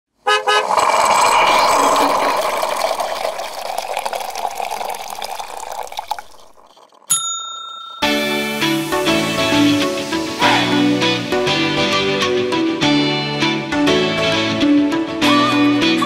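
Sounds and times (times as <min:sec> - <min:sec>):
liquid pouring: 0:00.3 - 0:07.2
sharp ringing ding: 0:07.1 - 0:08.9.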